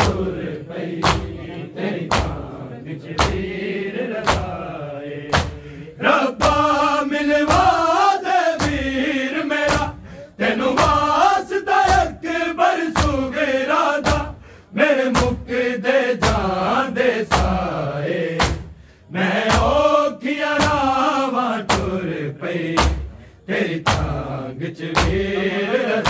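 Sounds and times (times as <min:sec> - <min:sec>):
men chanting in unison: 0:00.0 - 0:26.0
hands striking chest: 0:18.4 - 0:18.8.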